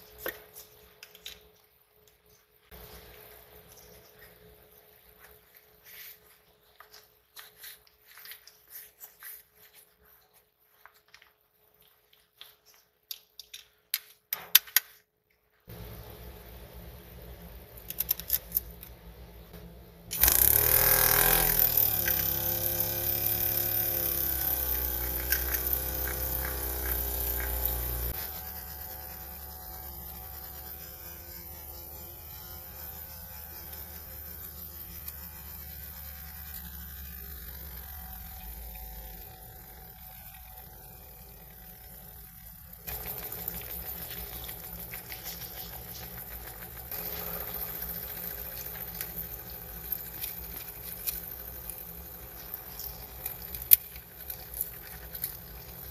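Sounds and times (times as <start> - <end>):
small electric motor whining: 20.1 - 55.9.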